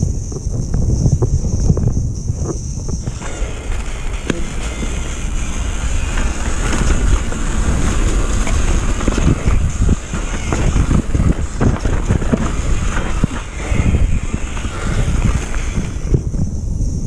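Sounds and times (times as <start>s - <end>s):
wind on microphone: 0.0s - 17.0s
mountain bike rattling and knocking: 3.0s - 16.3s.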